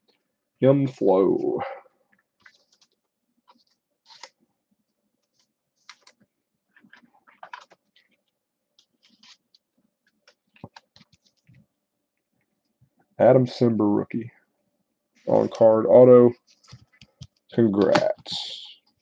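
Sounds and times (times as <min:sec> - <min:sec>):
trading cards clicking and scratching: 0:02.2 - 0:04.4, 0:05.2 - 0:11.6, 0:16.4 - 0:19.0.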